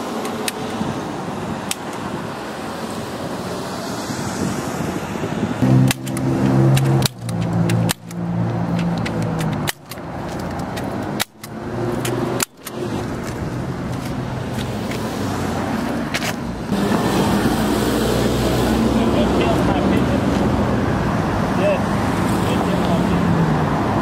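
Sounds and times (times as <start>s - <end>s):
street traffic: 0.0s - 24.0s
staple gun clicks: 5.8s - 8.2s, 8.8s - 12.8s.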